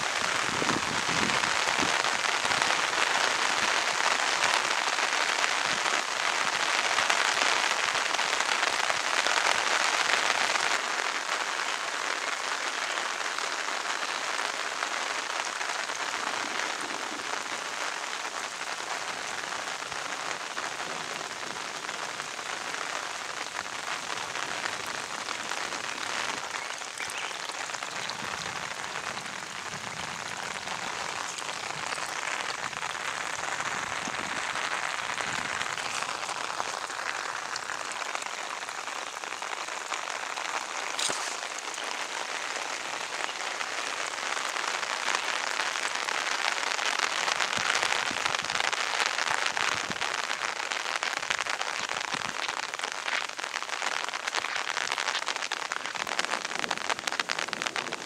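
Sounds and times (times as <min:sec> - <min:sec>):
water rushing in a channel: 0:19.4 - 0:46.6.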